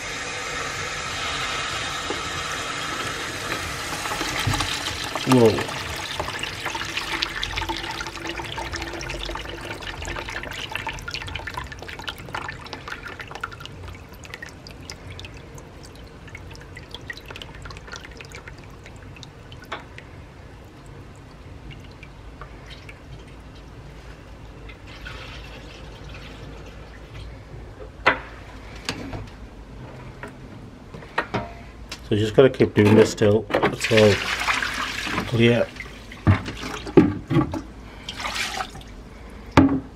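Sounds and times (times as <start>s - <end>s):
water pouring into plastic bucket: 0.0s - 19.7s, 33.7s - 37.1s, 38.0s - 39.0s.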